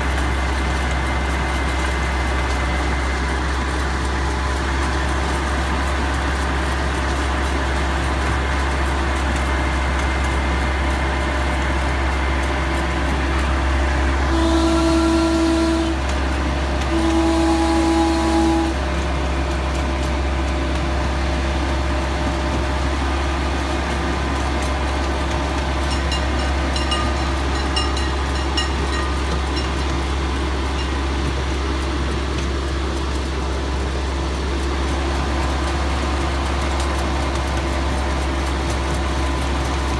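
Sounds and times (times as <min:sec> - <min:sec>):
miniature train engine hum: 0:00.0 - 0:39.9
train horn blasts: 0:14.2 - 0:16.2, 0:16.8 - 0:18.8.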